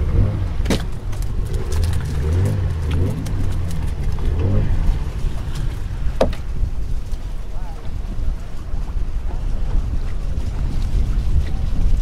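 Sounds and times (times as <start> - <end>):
boat engine rumble: 0.0 - 12.0
wind buffeting microphone: 0.0 - 12.0
faint voices: 7.3 - 10.0.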